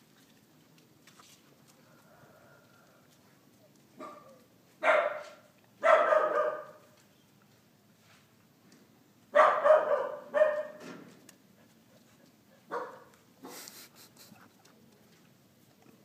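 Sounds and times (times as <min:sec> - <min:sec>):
dog barking: 0:04.0 - 0:06.8, 0:09.4 - 0:10.8, 0:12.6 - 0:13.6.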